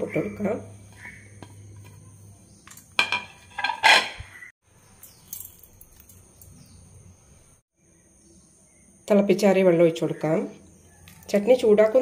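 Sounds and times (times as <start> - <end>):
plate scraping against steel bowl: 2.9 - 4.5.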